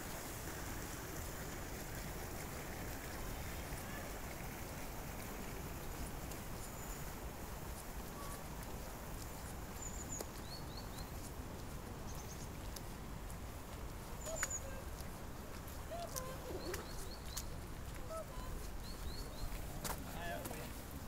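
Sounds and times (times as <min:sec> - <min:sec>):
small birds chirping: 0:06.6 - 0:07.2, 0:09.2 - 0:12.9, 0:14.0 - 0:20.4
lower bird calls: 0:16.0 - 0:19.6.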